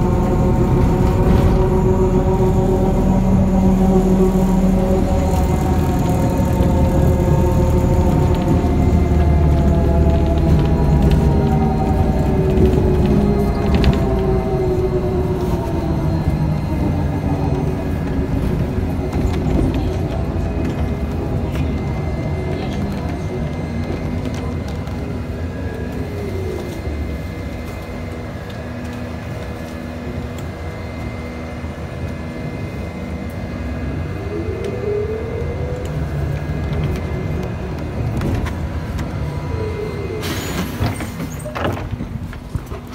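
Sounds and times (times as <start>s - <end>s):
electric motor whine: 0.0s - 15.0s
trolleybus cabin rumble: 0.0s - 42.9s.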